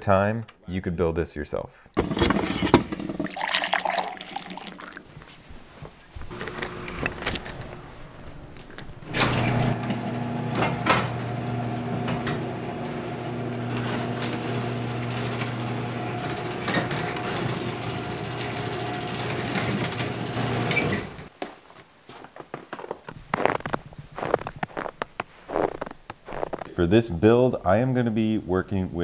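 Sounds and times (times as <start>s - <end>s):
motor clunk: 6.2s - 21.3s
garage door opener motor humming: 6.3s - 21.3s.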